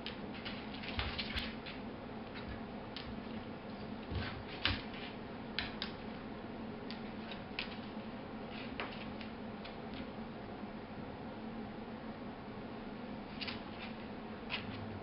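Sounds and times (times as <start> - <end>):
dog claws clicking on wood floor: 0.0 - 3.3, 4.1 - 6.0
low steady hum: 0.0 - 15.0.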